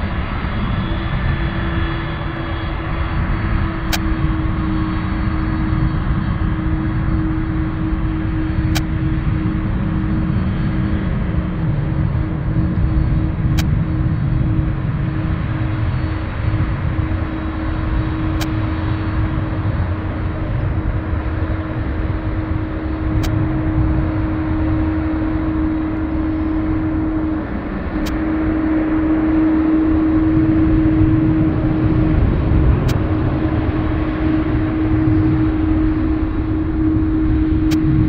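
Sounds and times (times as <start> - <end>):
jet engines humming: 0.0 - 38.0.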